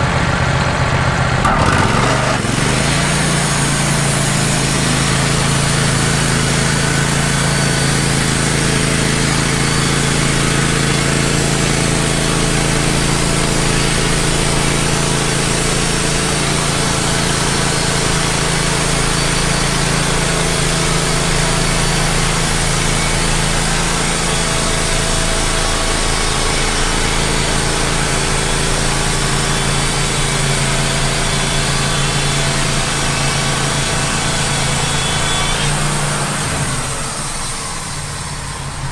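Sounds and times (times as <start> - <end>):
sawmill engine running: 0.0 - 38.9
band saw cutting log: 1.2 - 38.9.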